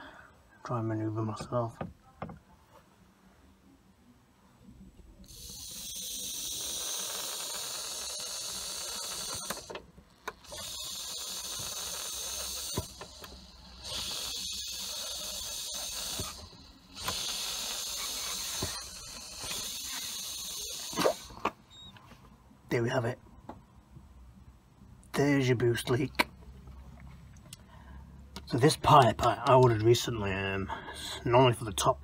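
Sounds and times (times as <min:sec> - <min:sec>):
air hissing from pipe joint: 0:05.3 - 0:09.8, 0:10.4 - 0:21.5.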